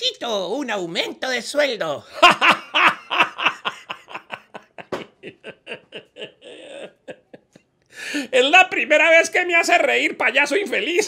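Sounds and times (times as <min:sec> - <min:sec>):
man laughing hard: 0:02.1 - 0:07.7
breathy wheeze: 0:07.9 - 0:08.3.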